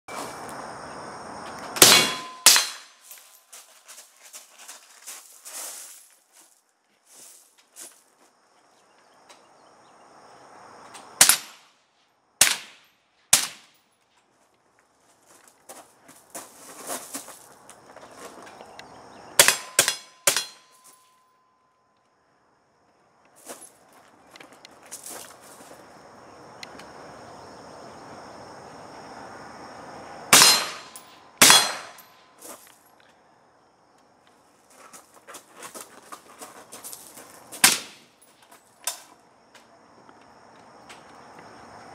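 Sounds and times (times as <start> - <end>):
suppressed rifle shots with echo: 1.8 - 2.8, 30.4 - 32.0
scuffs and knocks from movement: 3.0 - 8.3, 14.1 - 18.7, 34.6 - 37.6
boots crunching on gravel: 3.0 - 8.4, 14.3 - 19.0, 23.3 - 25.9, 32.0 - 32.9, 34.6 - 39.2
thin ringing tone: 20.1 - 21.8.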